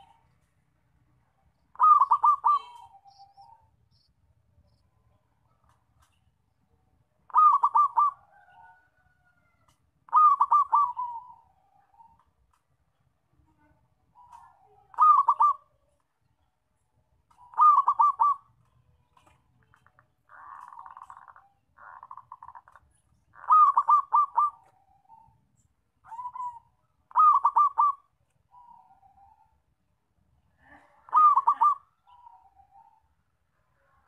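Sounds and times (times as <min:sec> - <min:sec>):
dove cooing: 0:01.7 - 0:03.6, 0:07.3 - 0:09.3, 0:10.1 - 0:12.2, 0:14.2 - 0:15.7, 0:17.4 - 0:18.5, 0:23.4 - 0:25.4, 0:26.1 - 0:29.6, 0:31.0 - 0:33.1
rough rattling call: 0:19.6 - 0:24.6.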